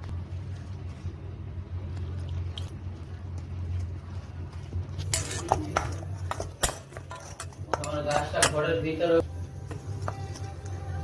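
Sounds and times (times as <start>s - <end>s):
hand rustling flour in bowl: 0.0s - 6.3s
steady low hum: 0.0s - 11.0s.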